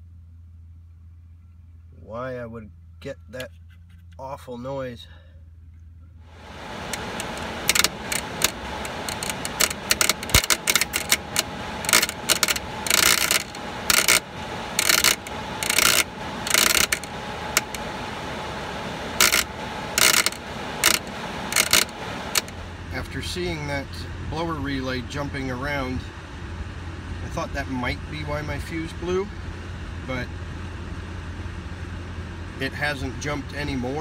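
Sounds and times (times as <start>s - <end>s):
blower running: 6.3s - 23.6s
relay chattering buzz: 6.4s - 23.0s.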